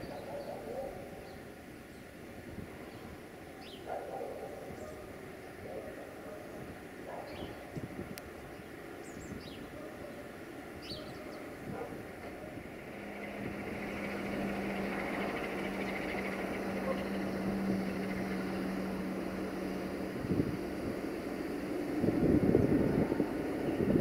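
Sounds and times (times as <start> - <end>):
diesel locomotive engine droning: 0.0 - 24.0
bird chirps: 10.8 - 11.5.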